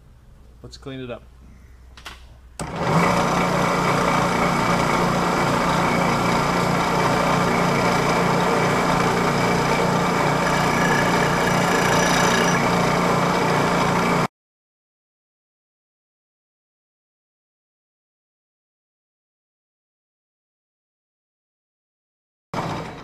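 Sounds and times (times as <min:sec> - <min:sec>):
milling machine pulsing drone: 0:03.8 - 0:14.3.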